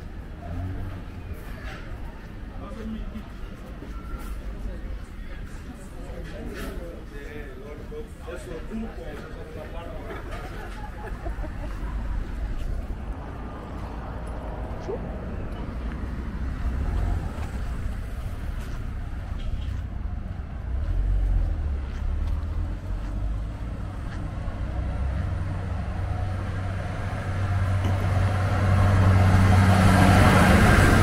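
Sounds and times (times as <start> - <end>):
low traffic rumble: 0.0 - 31.0
vehicle engine passing close: 11.8 - 31.0.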